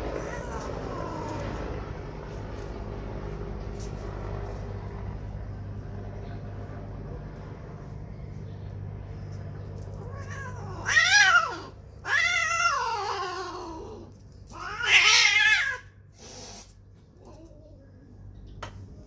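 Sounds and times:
cat yowling: 0.0 - 1.6, 10.0 - 16.0.

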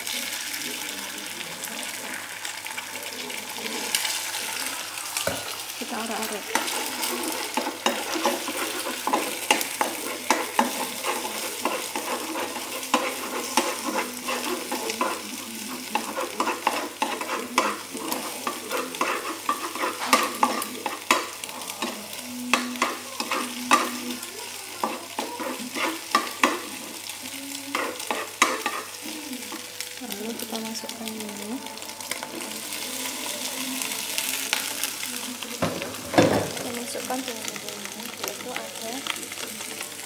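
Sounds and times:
food sizzling in frying pan: 0.0 - 40.0
utensil scraping pan: 6.2 - 26.9, 27.7 - 29.7.

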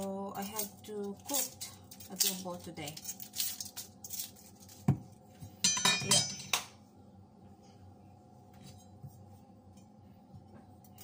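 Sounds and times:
faint hum: 0.0 - 11.0
kitchenware clinking and clattering: 0.4 - 6.8.

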